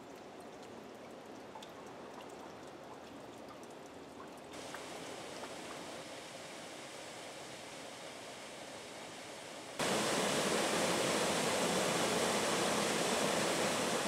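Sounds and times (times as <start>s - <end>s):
water running at a canal lock: 0.0s - 14.0s
water rushing down a spillway: 4.6s - 14.0s.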